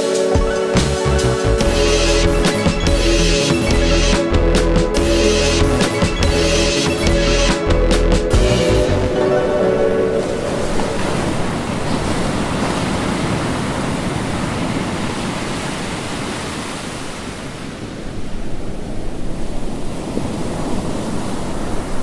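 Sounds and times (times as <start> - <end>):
surf breaking: 8.3 - 18.3
wind buffeting microphone: 9.1 - 22.0.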